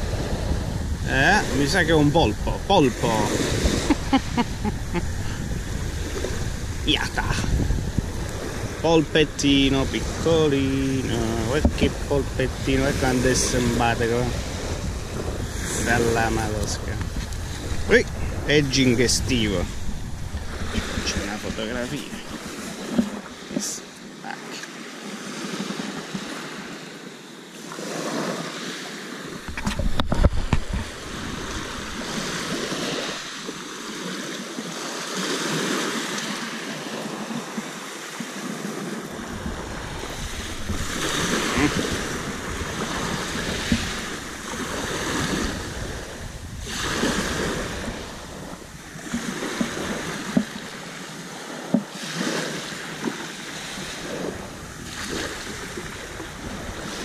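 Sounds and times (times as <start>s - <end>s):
wind buffeting microphone: 0.0s - 23.8s, 29.3s - 33.4s, 38.6s - 50.9s, 51.6s - 57.0s
small waves on pebble beach: 0.0s - 57.0s.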